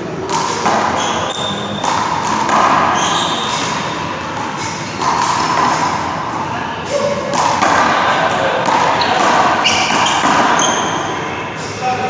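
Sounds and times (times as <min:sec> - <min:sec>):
sneakers squeaking on floor: 0:00.7 - 0:06.2, 0:08.8 - 0:11.7.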